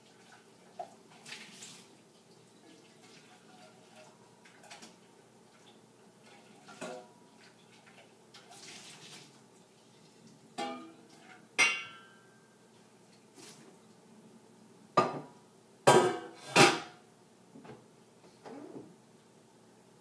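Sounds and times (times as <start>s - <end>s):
water running: 0.0s - 11.3s
dishes clinking in a sink: 6.7s - 7.2s, 10.6s - 12.5s, 15.0s - 15.3s, 15.9s - 17.0s.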